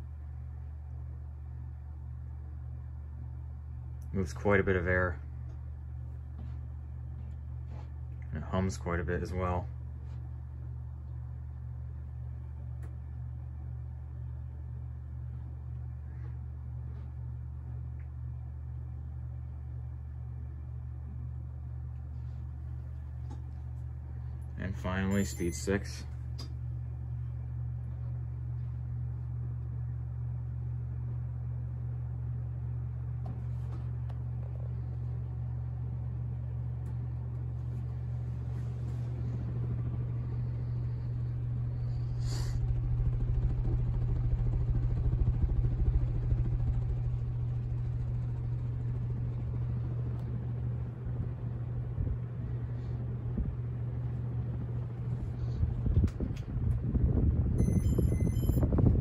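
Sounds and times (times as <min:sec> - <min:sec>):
ceiling fan humming: 0:00.0 - 0:59.0
fan draft buffeting microphone: 0:32.0 - 0:59.0.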